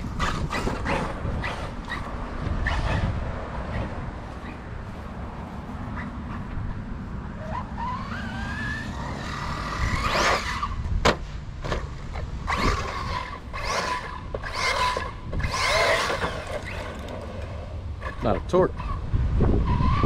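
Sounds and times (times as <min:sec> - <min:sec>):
toy car motor whine: 0:00.0 - 0:03.0, 0:07.4 - 0:10.8, 0:12.5 - 0:18.2
tyres skidding on dirt: 0:00.0 - 0:20.0.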